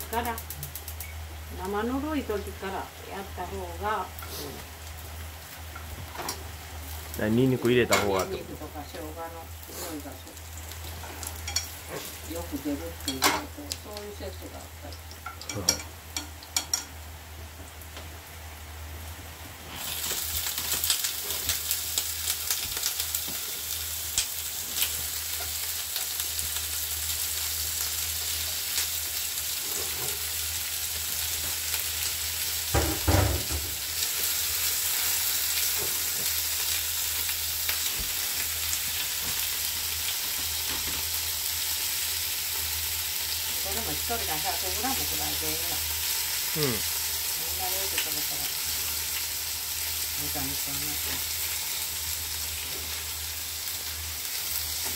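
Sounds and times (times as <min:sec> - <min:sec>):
stir-fry sizzling in hot oil: 0:00.0 - 0:54.9
utensil clicking in pan: 0:00.2 - 0:01.2.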